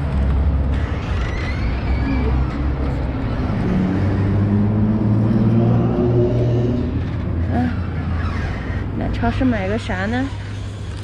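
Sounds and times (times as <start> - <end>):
street traffic rumble: 0.0 - 11.0
car engine accelerating: 2.4 - 7.6.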